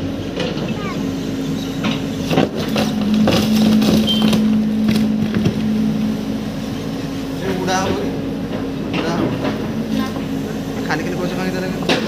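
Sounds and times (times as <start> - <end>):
excavator diesel engine humming: 0.0 - 12.0
bucket knocking and cracking branches: 2.3 - 5.7.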